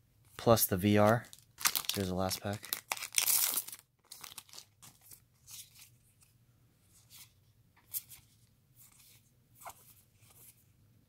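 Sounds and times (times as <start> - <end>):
trading cards rustling: 0.5 - 6.0.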